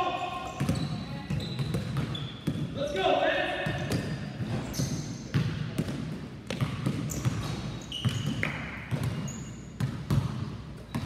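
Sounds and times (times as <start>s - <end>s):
basketballs dribbling on hardwood: 0.0s - 3.0s, 3.6s - 11.0s.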